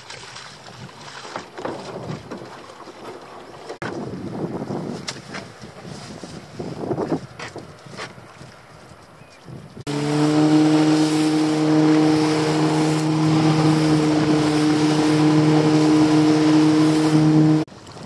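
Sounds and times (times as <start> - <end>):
water and wind noise: 0.0 - 18.0
outboard motor running: 9.9 - 18.0.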